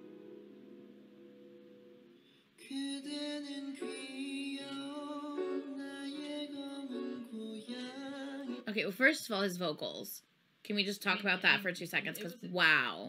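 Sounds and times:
piano chord: 0.0s - 2.3s
soft backing music: 0.0s - 8.7s
man singing long notes: 2.6s - 8.7s.

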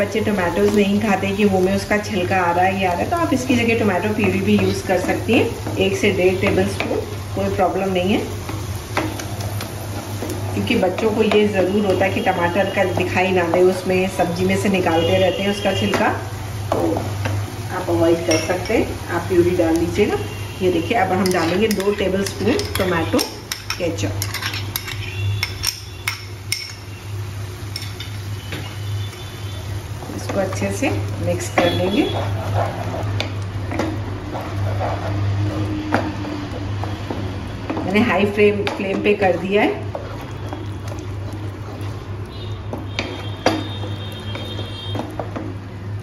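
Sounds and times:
spatula stirring thick sauce: 31.6s - 45.7s.

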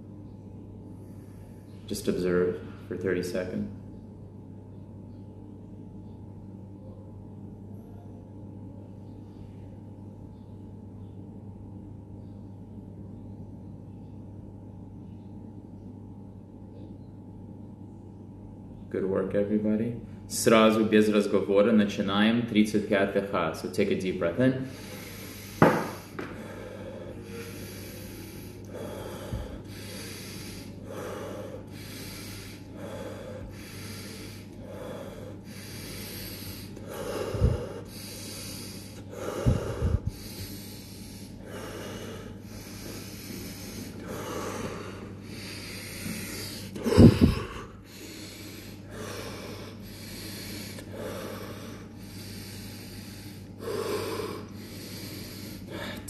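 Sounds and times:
person breathing forcefully: 24.6s - 56.0s.

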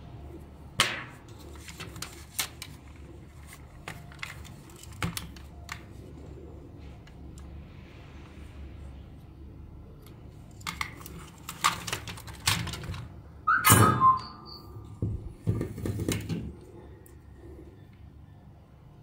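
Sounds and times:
plastic parts and tools clattering: 10.5s - 13.1s, 15.4s - 16.6s
brief ringing tone: 13.5s - 14.9s.

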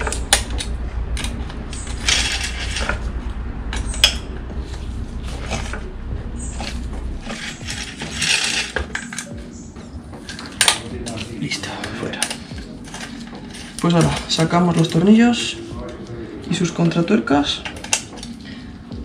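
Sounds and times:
metal tools clicking and ratcheting: 0.0s - 3.1s, 3.7s - 4.4s, 5.3s - 15.5s, 16.6s - 18.8s
rasping metal scrapes: 0.0s - 9.7s.

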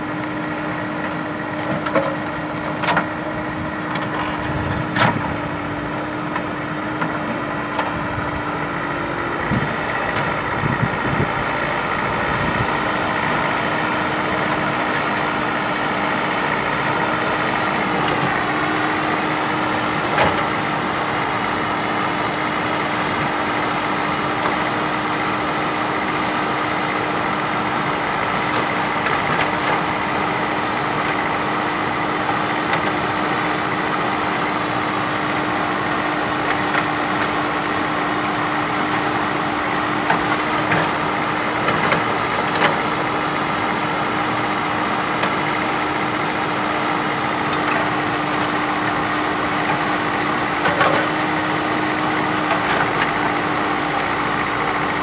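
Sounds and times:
diesel engine running with whine: 0.0s - 55.0s.

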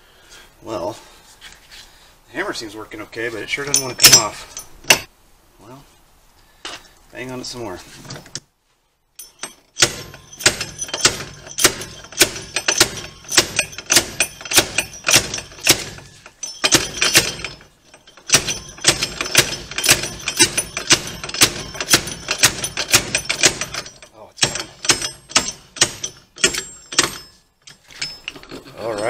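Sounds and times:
slide hammer metal clanks: 3.7s - 5.1s, 9.2s - 29.0s.

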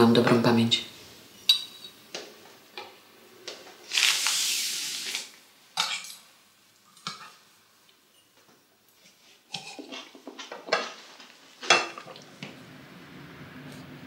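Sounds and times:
cutlery clinking on plate: 1.5s - 2.0s, 7.0s - 7.4s
rustling hiss: 3.6s - 5.4s.

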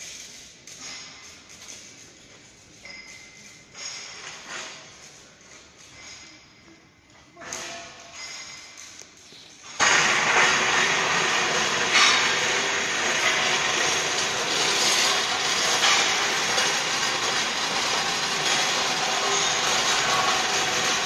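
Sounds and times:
clattering machinery: 7.4s - 21.0s.

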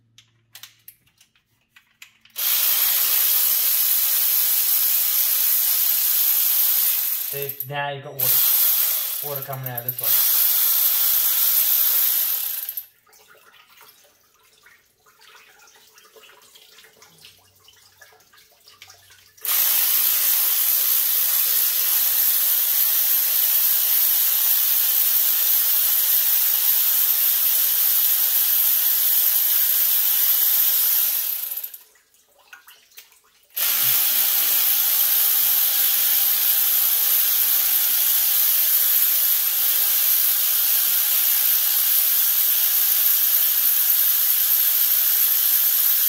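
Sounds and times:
pneumatic tool air hiss: 2.4s - 7.5s, 8.2s - 12.8s, 19.4s - 31.7s, 33.6s - 46.0s.

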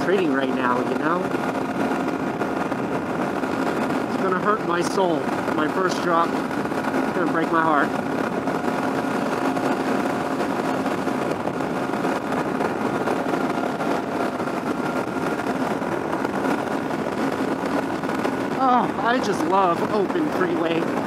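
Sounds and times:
motorcycle engine hum: 0.0s - 21.0s
wind rushing over helmet: 0.0s - 21.0s.

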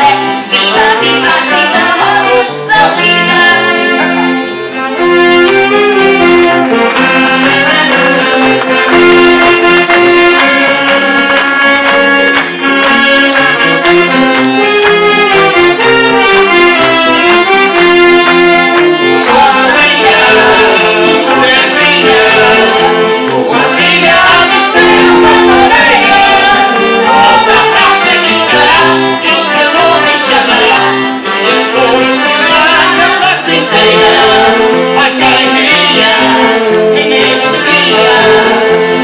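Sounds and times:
accordion and fiddle band: 0.0s - 39.0s
wavering melody with vibrato: 13.0s - 39.0s.

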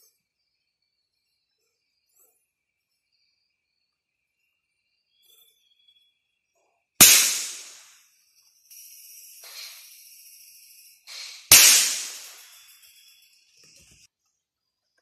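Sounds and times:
night insects trilling: 0.0s - 6.5s, 7.4s - 14.1s
rifle shots: 7.0s - 7.9s, 11.5s - 12.4s.

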